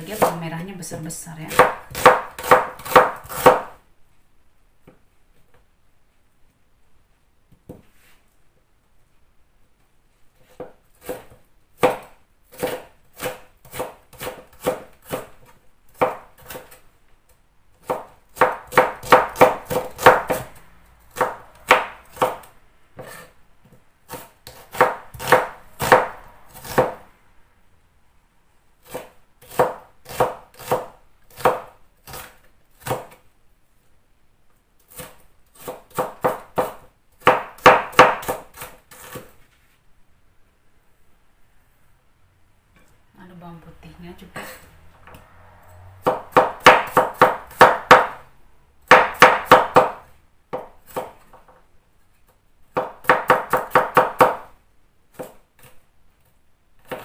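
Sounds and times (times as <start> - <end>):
knife chopping on wooden board: 0.1 - 0.4, 1.5 - 3.8, 10.5 - 16.8, 17.8 - 20.5, 21.1 - 27.0, 28.8 - 33.2, 34.9 - 39.4, 46.0 - 48.2, 48.9 - 51.5, 52.7 - 54.5.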